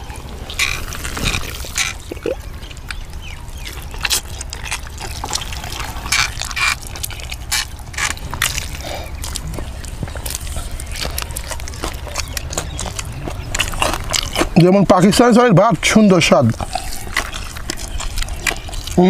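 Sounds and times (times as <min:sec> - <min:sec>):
steady low rumble: 0:00.0 - 0:15.0
man chewing and lip smacking: 0:00.0 - 0:19.0.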